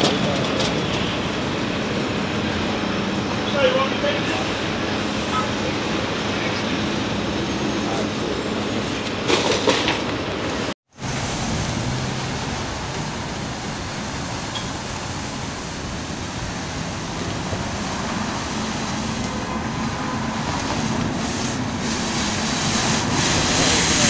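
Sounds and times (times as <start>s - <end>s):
passing traffic: 0.0s - 24.0s
street sweeper engine hum: 0.0s - 24.0s.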